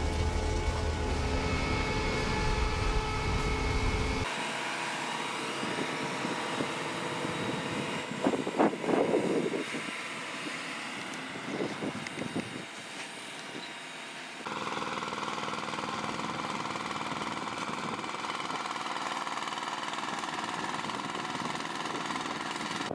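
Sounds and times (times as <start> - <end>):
harvester heavy low rumble: 0.0 - 4.3
conveyor running: 0.0 - 8.0.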